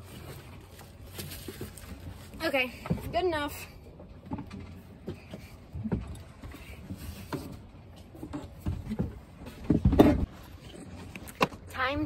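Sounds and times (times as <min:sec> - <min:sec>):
hollow knocks and thumps: 0:08.2 - 0:10.3.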